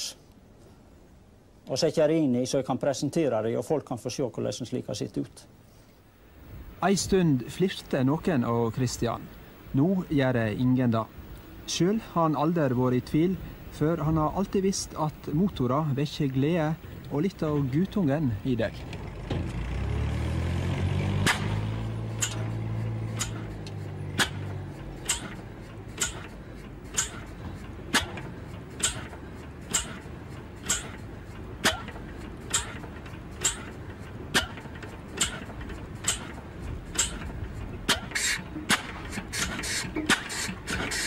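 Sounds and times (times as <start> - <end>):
low hum: 6.2 - 40.1
single-cylinder engine knocking: 22.1 - 41.0.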